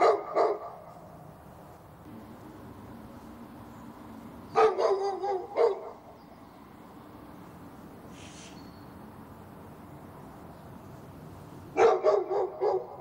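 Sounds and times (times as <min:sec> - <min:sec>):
dog barking: 0:00.0 - 0:00.9, 0:04.5 - 0:06.0, 0:11.7 - 0:13.0.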